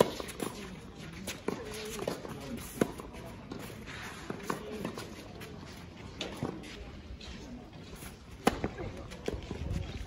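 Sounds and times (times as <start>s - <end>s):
faint voices: 0.0s - 10.0s.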